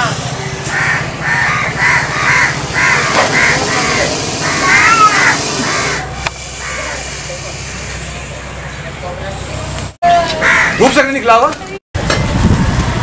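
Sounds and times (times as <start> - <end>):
crows cawing: 0.6 - 6.0, 6.6 - 7.0, 10.4 - 11.0.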